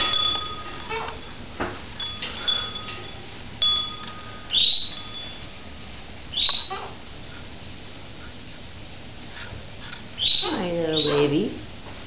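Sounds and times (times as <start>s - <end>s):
short ringing clinks: 0.0s - 5.7s
parrot calling: 0.8s - 1.3s, 4.4s - 5.5s, 6.3s - 7.1s, 10.2s - 11.4s.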